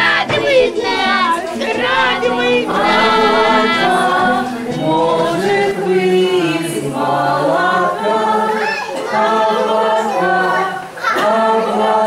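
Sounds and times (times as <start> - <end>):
group of voices singing: 0.0 - 12.0.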